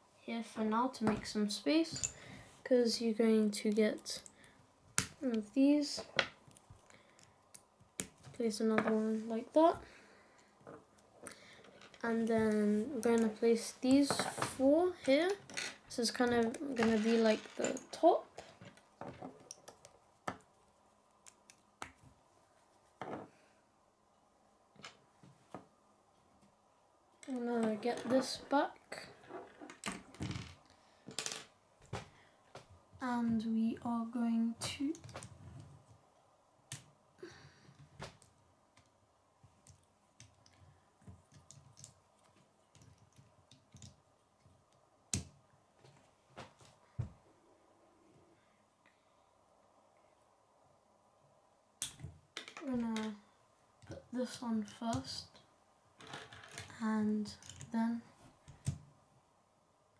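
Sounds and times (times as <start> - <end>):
plastic pieces clicking and rattling: 41.3 - 44.0.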